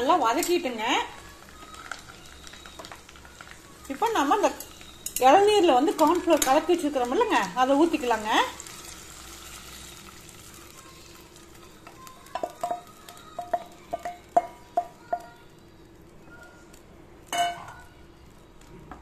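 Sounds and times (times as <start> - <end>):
faint sizzle in a pan: 0.0 - 19.0
kitchenware clinking against pan: 4.4 - 6.9, 12.2 - 15.3, 17.3 - 17.9.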